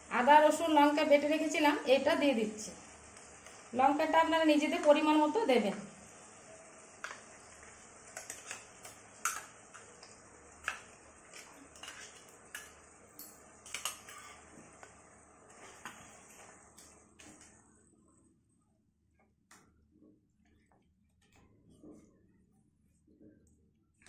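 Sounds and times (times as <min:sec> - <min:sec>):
spatula stirring in a pan: 0:02.7 - 0:17.5.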